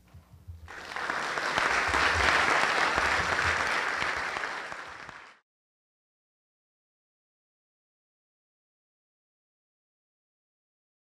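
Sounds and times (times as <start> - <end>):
audience applauding: 0.7 - 5.4.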